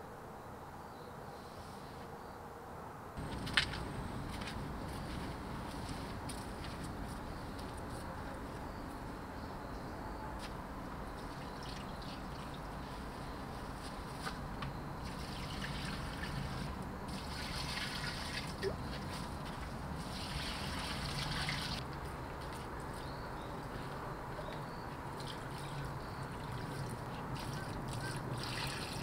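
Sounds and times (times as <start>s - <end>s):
water trickling onto soil: 11.2s - 14.4s, 15.0s - 23.0s, 25.0s - 29.0s.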